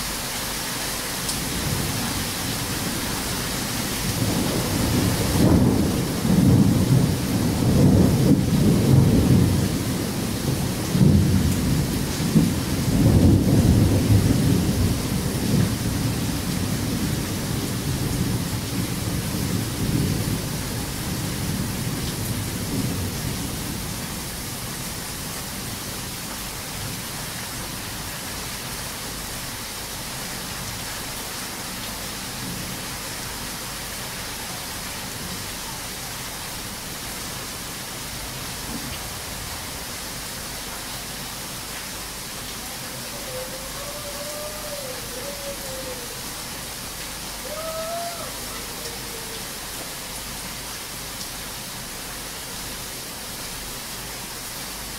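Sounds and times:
heavy rain pouring: 0.0s - 54.9s
thunder rumbling: 4.1s - 23.8s.

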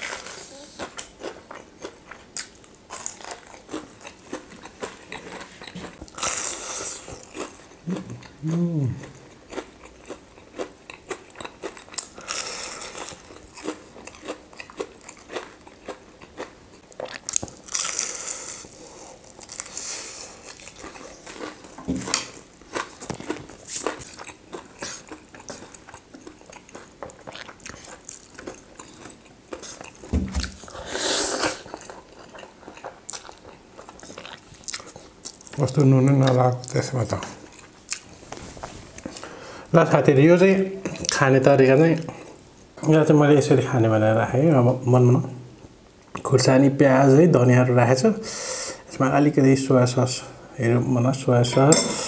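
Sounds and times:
crunchy bites and chewing: 0.0s - 30.8s.

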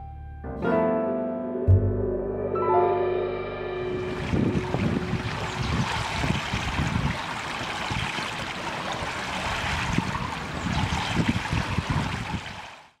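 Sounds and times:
low rumble: 1.7s - 7.3s
pool water rushing and trickling: 3.9s - 13.0s.

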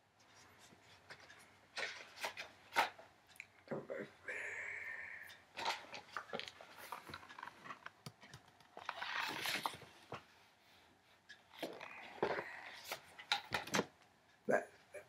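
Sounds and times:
book pages rustling: 0.2s - 3.0s, 5.6s - 13.9s
small clicks and crackles: 5.2s - 10.4s.

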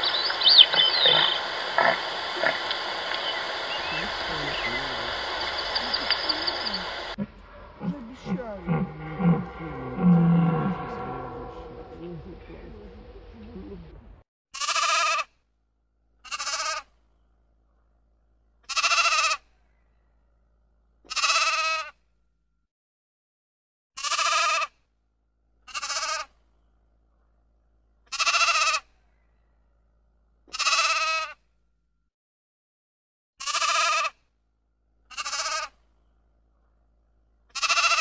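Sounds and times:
low animal sound: 0.0s - 14.2s
sheep bleating: 0.1s - 13.3s, 16.3s - 16.8s, 18.7s - 19.4s, 21.1s - 21.9s, 24.0s - 24.7s, 25.7s - 26.3s, 28.1s - 28.8s, 30.5s - 31.3s, 33.4s - 34.1s, 35.1s - 35.7s, 37.5s - 38.0s.

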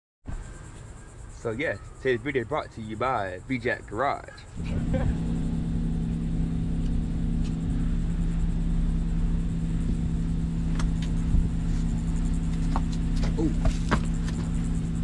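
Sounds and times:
car engine idling: 4.4s - 15.0s.

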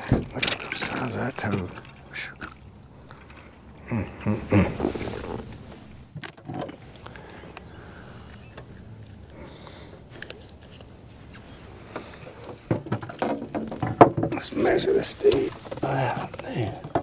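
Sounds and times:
knocking and rustling in boat: 0.0s - 3.6s, 4.6s - 17.0s
light clicks and rattles: 0.0s - 3.6s.

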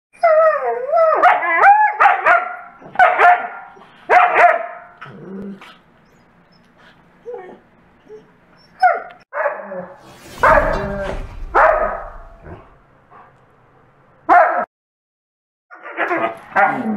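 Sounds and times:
dogs barking and yipping: 0.8s - 5.0s, 10.4s - 12.3s, 15.7s - 16.9s.

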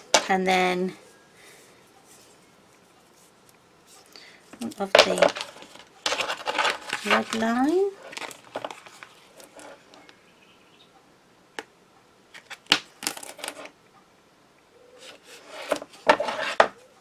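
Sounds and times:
rustling: 0.9s - 10.2s, 12.3s - 13.8s, 14.9s - 17.0s.

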